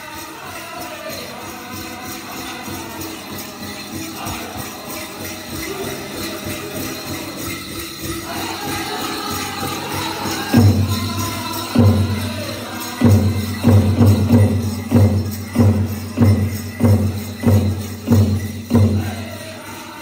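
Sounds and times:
ankle bells jingling: 0.0s - 20.0s
big drum beats: 10.5s - 19.4s.

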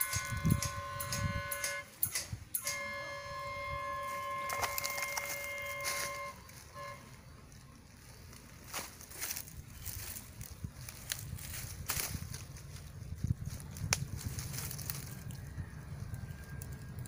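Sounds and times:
train horn chord: 0.0s - 1.9s, 2.6s - 7.4s.

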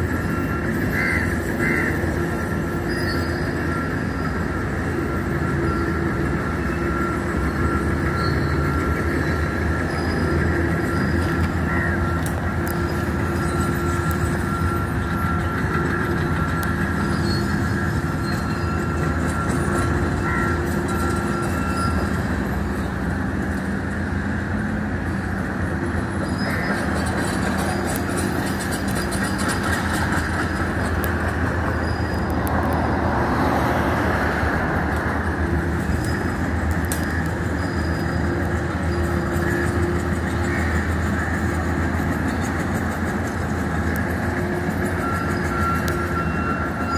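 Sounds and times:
diesel engines droning: 0.0s - 46.9s
thin steady whine: 0.0s - 46.9s.

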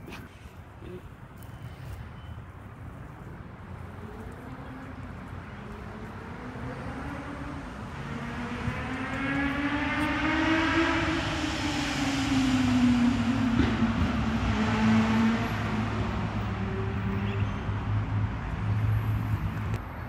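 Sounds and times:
low traffic hum: 0.0s - 20.0s
passing vehicle engine: 3.8s - 19.8s.

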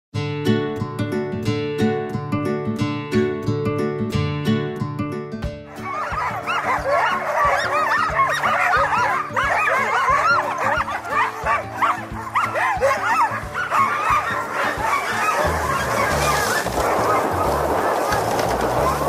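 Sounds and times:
sled dogs yelping: 5.7s - 19.0s.

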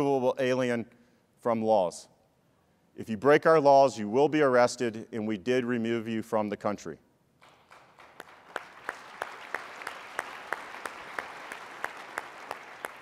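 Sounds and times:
audience applauding: 7.4s - 13.0s
sharp claps of one person: 7.4s - 13.0s.

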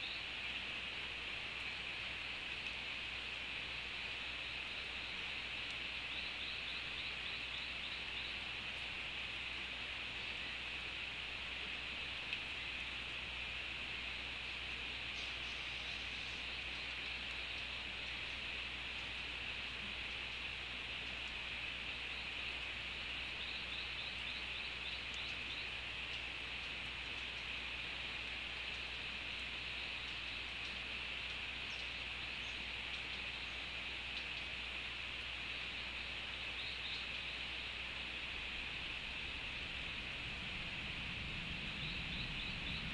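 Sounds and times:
faint chirps: 0.0s - 0.6s, 4.1s - 8.9s, 14.7s - 19.0s, 21.8s - 27.7s, 28.6s - 34.8s, 35.4s - 42.9s
rain hiss in forest: 0.0s - 42.9s.

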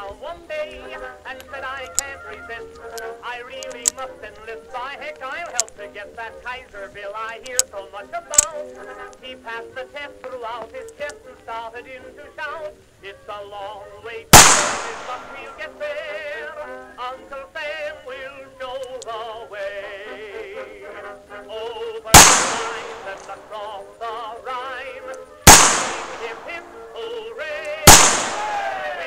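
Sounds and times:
revolver shots with echo: 14.4s - 15.5s, 22.2s - 23.3s, 25.5s - 26.6s, 27.9s - 28.8s.

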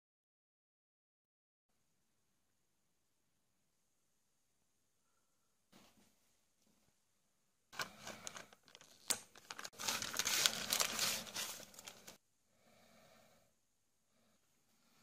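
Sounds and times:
plastic bags crinkling: 7.8s - 12.2s
soft plastic rustle: 7.8s - 12.2s.

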